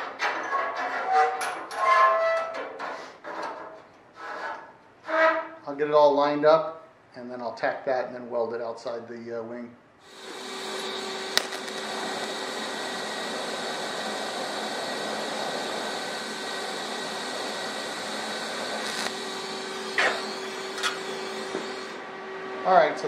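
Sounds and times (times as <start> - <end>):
welding arc hissing: 10.0 - 22.0.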